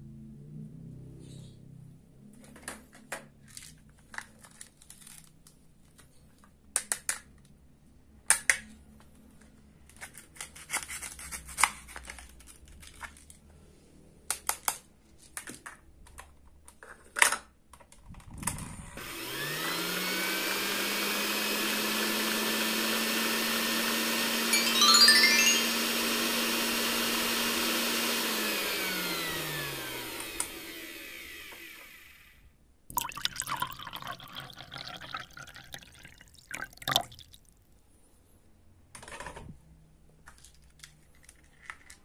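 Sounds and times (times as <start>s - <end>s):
toy mixer motor whining: 19.0s - 32.4s.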